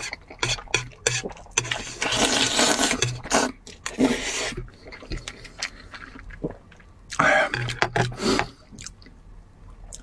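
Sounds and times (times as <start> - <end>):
noodles being slurped: 0.0 - 6.4.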